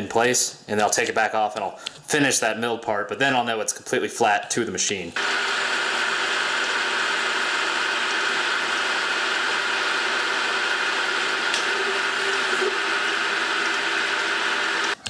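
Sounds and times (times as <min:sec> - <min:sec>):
metal lathe cutting aluminum: 0:05.2 - 0:15.0.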